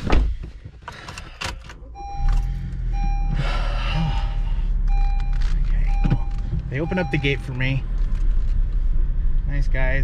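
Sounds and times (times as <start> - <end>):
car engine starting and running: 0.0 - 10.0
car warning chime beeping: 1.8 - 7.9.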